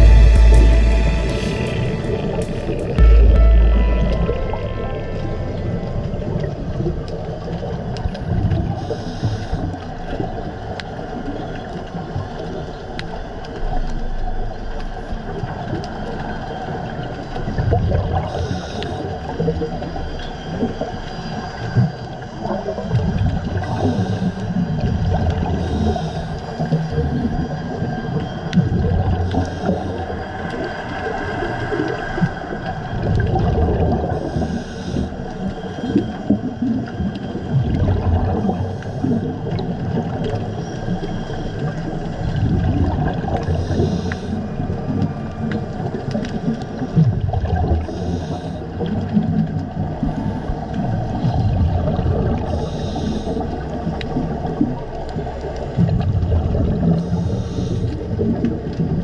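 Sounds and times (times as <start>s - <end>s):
gurgling rush of bubbles: 3.7s - 59.0s
diver breathing through regulator: 25.6s - 26.7s, 34.1s - 35.9s, 43.4s - 44.6s, 47.8s - 48.9s, 52.4s - 54.0s, 56.8s - 58.4s.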